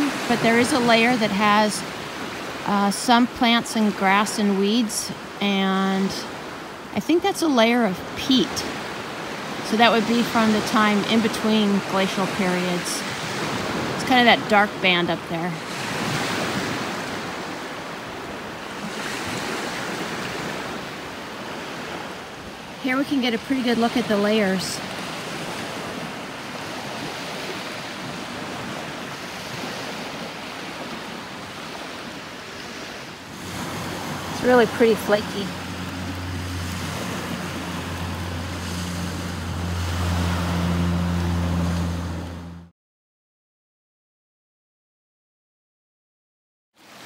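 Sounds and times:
waves washing on pebble beach: 0:00.0 - 0:42.2
surf: 0:00.0 - 0:42.5
wind: 0:00.0 - 0:42.7, 0:46.8 - 0:47.0
low engine drone: 0:33.9 - 0:42.7.

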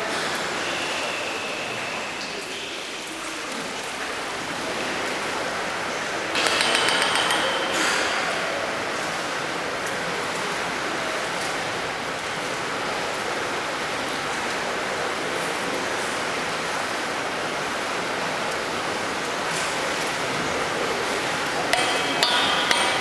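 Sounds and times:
indoor swimming pool noise: 0:00.0 - 0:23.0
knocks on metal ladder: 0:06.4 - 0:08.1.

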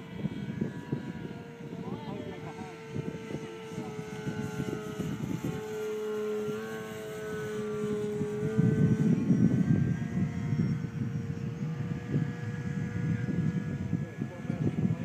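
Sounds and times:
model airplane motor whining: 0:00.0 - 0:15.0
wind noise on microphone: 0:00.0 - 0:15.0.

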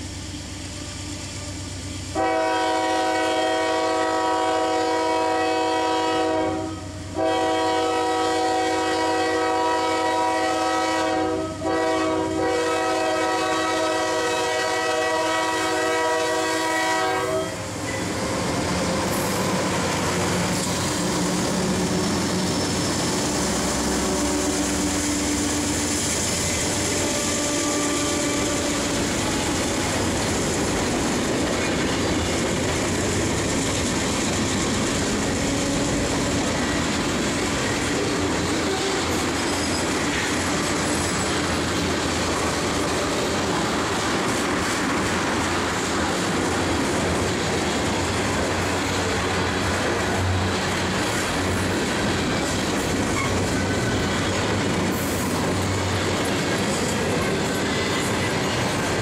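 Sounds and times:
diesel locomotive engines: 0:00.0 - 0:59.0
locomotive air horn blasts: 0:01.4 - 0:17.7, 0:23.8 - 0:29.6.

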